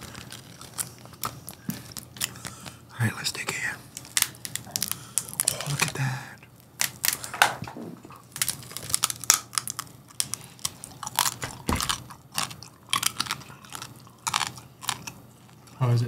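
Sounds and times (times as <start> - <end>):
crunching pork rinds: 0.0 - 2.9, 3.8 - 16.0
dull thump: 11.4 - 12.1.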